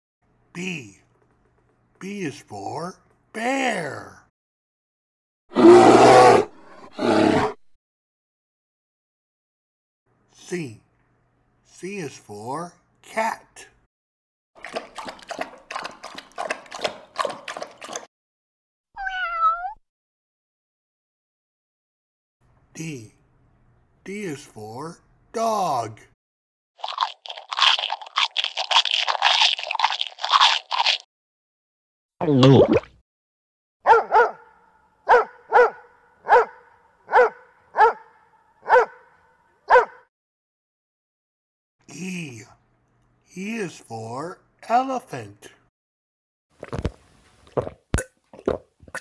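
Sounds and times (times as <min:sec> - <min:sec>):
cat meowing: 0:19.0 - 0:19.8
dog barking: 0:33.8 - 0:40.1.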